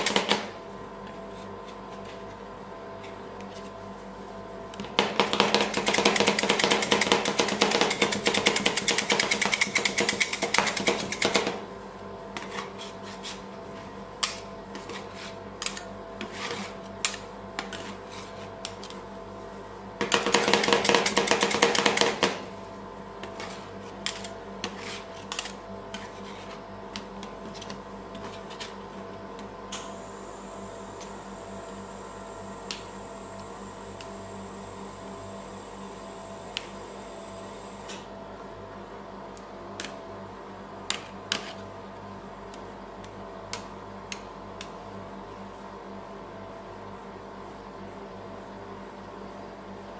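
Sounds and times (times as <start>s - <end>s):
steady hum: 0.0s - 49.9s
metal spatulas chopping on plate: 5.0s - 11.6s, 20.0s - 22.4s
spatula taps and scrapes: 14.3s - 19.0s.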